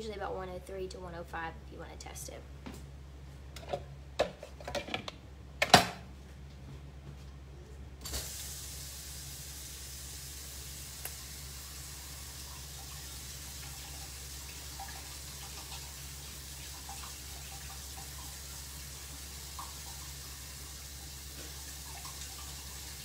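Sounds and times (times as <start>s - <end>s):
tap water running: 8.0s - 23.0s.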